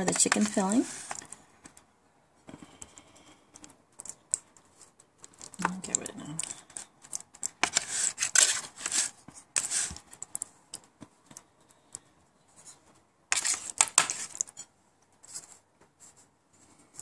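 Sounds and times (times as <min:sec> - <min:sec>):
plastic spoon scraping aluminum pan: 0:00.0 - 0:01.3, 0:05.6 - 0:10.0, 0:13.3 - 0:14.6.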